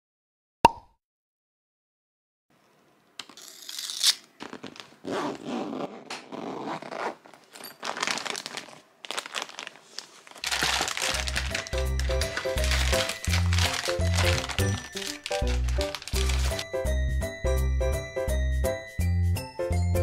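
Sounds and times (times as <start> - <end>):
zipper pulled open: 3.4 - 8.4
plastic packages crinkling: 3.7 - 5.1, 6.6 - 16.7
background music: 10.5 - 20.0.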